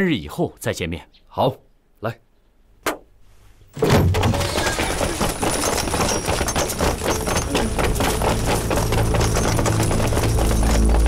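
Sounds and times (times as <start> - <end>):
many quick footsteps running: 4.0 - 11.0.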